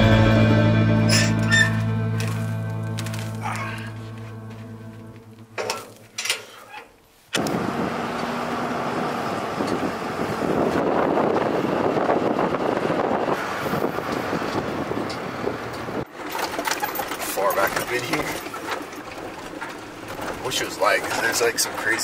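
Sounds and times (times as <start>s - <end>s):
truck engine and road noise: 0.0s - 22.0s.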